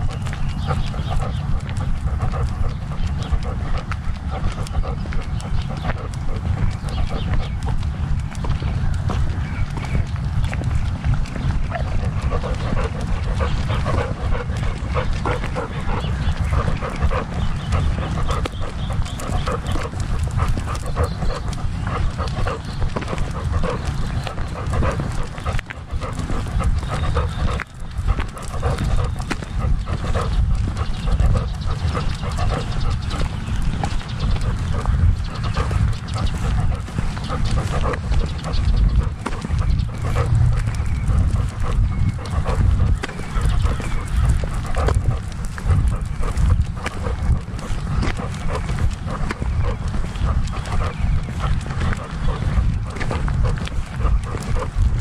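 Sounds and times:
dog panting: 0.0s - 55.0s
low rumble: 0.0s - 55.0s
paws crunching on gravel: 0.0s - 55.0s.

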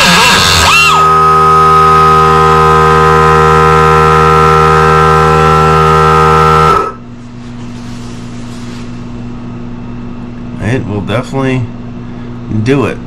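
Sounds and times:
pneumatic tool whining: 0.0s - 7.0s.

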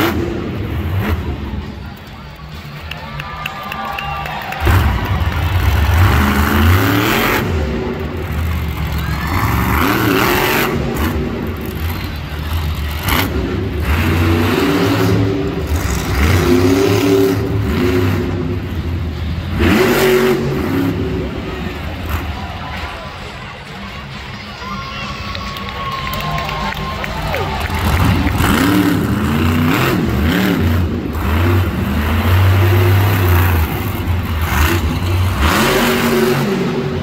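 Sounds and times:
truck engine revving hard: 0.0s - 1.7s, 4.6s - 22.4s, 27.4s - 37.0s.

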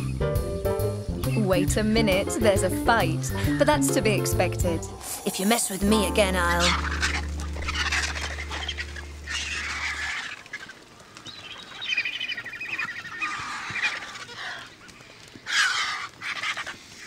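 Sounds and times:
vultures giving harsh raspy calls: 4.8s - 17.0s
low note of background music: 5.7s - 10.2s.

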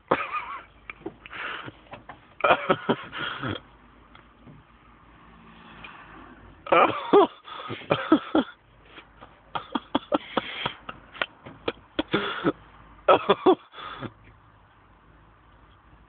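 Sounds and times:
man coughing: 2.4s - 3.6s, 6.7s - 8.6s, 9.6s - 10.8s, 12.0s - 14.1s.

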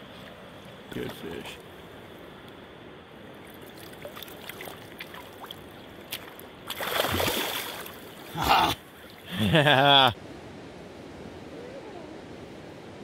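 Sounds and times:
river flowing: 0.0s - 13.0s
fish splashing in shallow water: 3.4s - 8.4s.

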